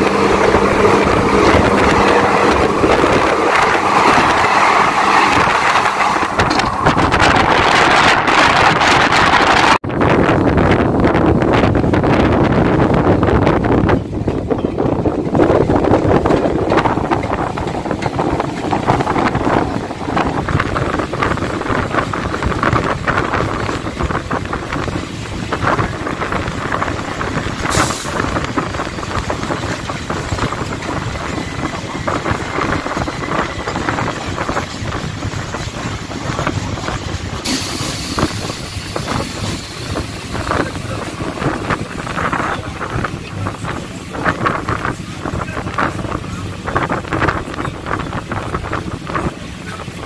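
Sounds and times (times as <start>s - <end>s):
rush of air: 0.0s - 10.8s, 15.3s - 45.7s
train wheels rumbling on rails: 0.0s - 50.0s
clatter over rail joints: 13.6s - 50.0s
sharp hiss: 27.7s - 28.2s, 37.4s - 39.9s.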